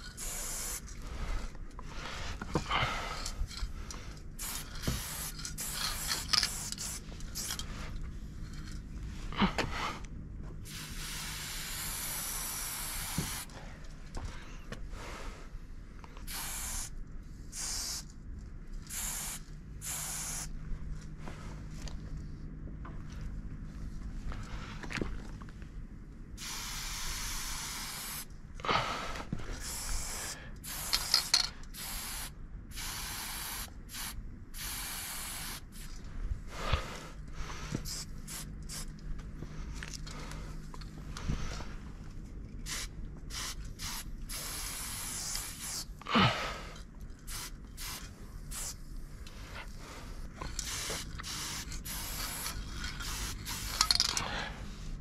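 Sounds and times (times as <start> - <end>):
spray paint can hissing: 0.0 - 0.9, 4.4 - 7.6, 10.7 - 13.5, 16.3 - 18.1, 18.9 - 20.5, 26.4 - 28.3, 29.6 - 36.0, 37.8 - 38.9, 42.6 - 46.0, 47.2 - 48.8, 50.5 - 54.2.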